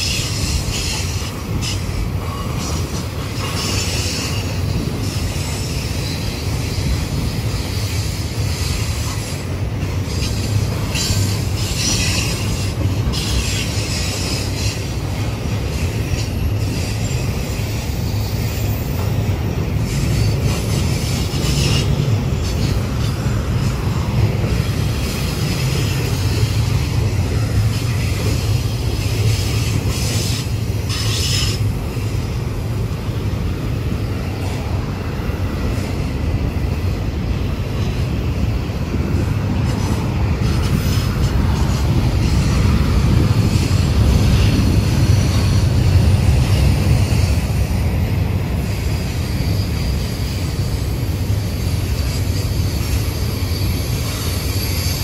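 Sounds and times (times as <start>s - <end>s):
train wheels rumbling on rail: 0.0s - 55.0s
high wheel squeals: 48.6s - 55.0s.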